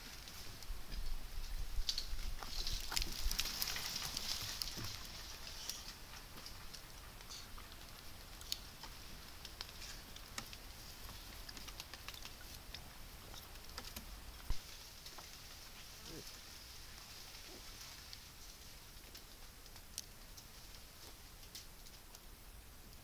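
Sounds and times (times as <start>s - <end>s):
monkeys splashing water: 6.5s - 14.4s
soft ticks: 19.0s - 22.3s.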